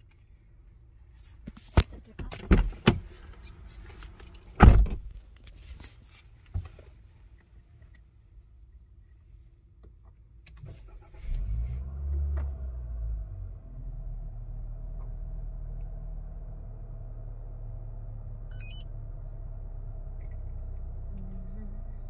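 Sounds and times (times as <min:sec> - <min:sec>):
car engine starting and idling: 0:09.8 - 0:22.0.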